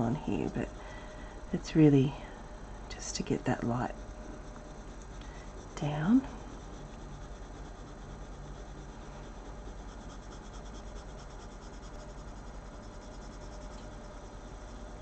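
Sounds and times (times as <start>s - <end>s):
pencil scratching on paper: 3.0s - 15.0s.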